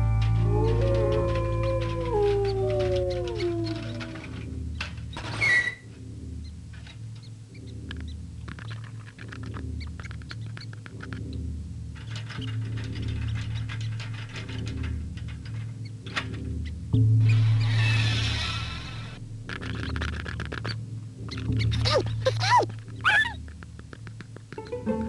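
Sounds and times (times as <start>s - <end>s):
low hum: 0.0s - 25.0s
squeak-like burst: 5.1s - 5.9s, 17.2s - 23.4s
small ticks and patter: 6.7s - 11.4s, 19.5s - 24.8s.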